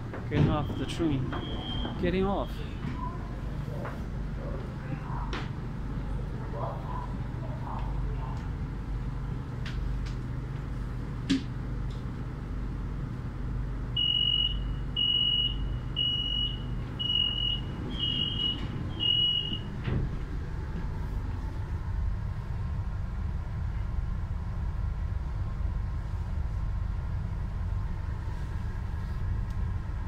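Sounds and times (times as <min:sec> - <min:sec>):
train doors shutting: 0:00.0 - 0:04.1, 0:14.0 - 0:21.7
low hum of train: 0:00.0 - 0:30.0
high door warning beeps: 0:00.4 - 0:03.2, 0:14.0 - 0:19.8.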